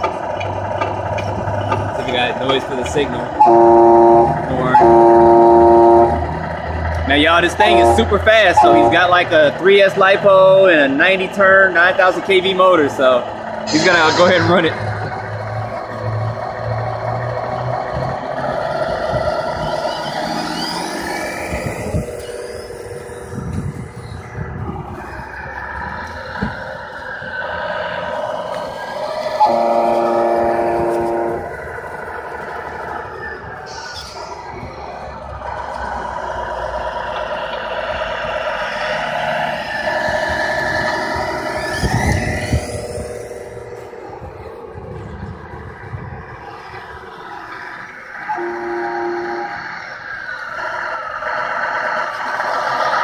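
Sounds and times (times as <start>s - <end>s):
toy truck motor whine: 19.9s - 24.0s.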